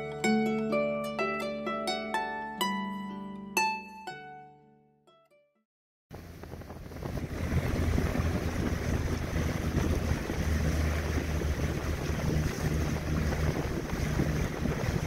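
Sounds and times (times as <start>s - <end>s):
plucked harp notes: 0.0s - 5.4s
boat engine droning: 6.1s - 15.0s
water splashing along hull: 6.1s - 15.0s
wind buffeting microphone: 6.1s - 15.0s.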